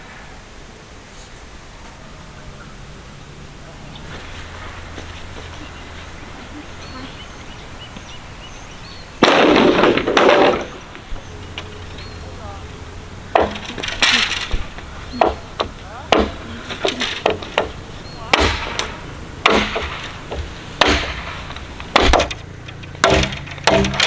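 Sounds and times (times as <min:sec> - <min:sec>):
bamboo poles clattering: 0:09.2 - 0:12.2, 0:13.2 - 0:24.0
machete hacking bamboo: 0:13.4 - 0:14.5, 0:15.2 - 0:24.0.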